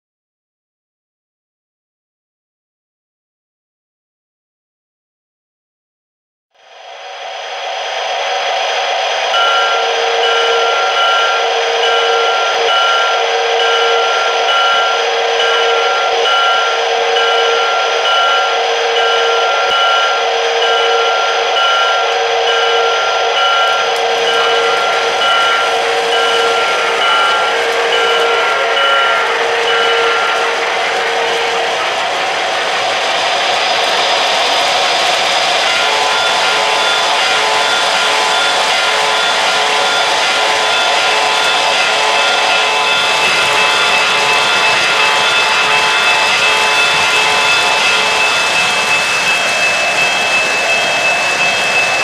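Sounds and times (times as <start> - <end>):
model train motors humming: 7.6 - 52.0
repeating bell tone: 9.4 - 32.2, 33.4 - 52.0.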